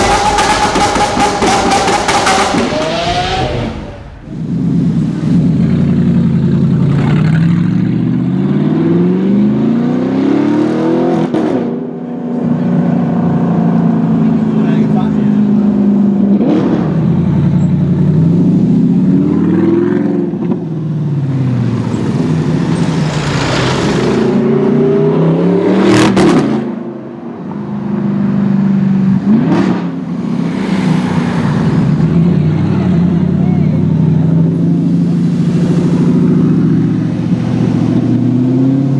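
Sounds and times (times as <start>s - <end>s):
exhaust cracks: 0.0s - 5.4s
car engine revving and accelerating: 0.0s - 28.4s, 29.1s - 38.9s.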